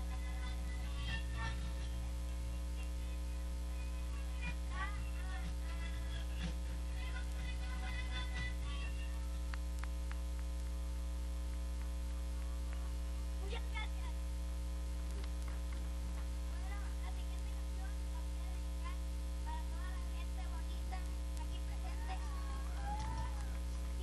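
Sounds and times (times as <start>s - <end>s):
electrical mains hum: 0.0s - 24.0s
faint wavering voices: 15.2s - 24.0s.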